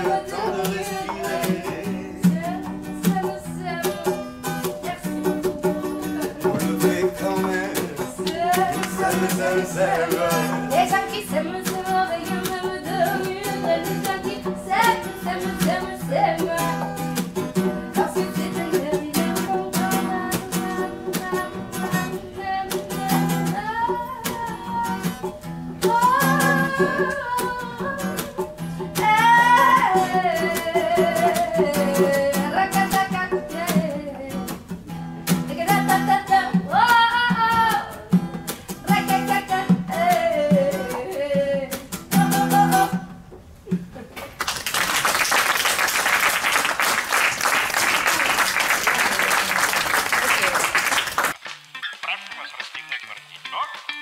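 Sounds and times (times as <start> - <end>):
woman singing: 0.0 - 43.2
hand drum: 0.0 - 43.4
strummed acoustic guitar: 0.0 - 43.9
audience applause: 44.4 - 53.3.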